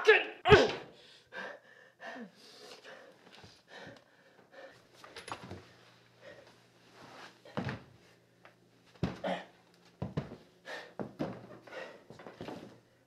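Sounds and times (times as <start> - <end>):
heavy breathing: 0.9 - 4.9, 6.2 - 6.6, 10.6 - 12.3.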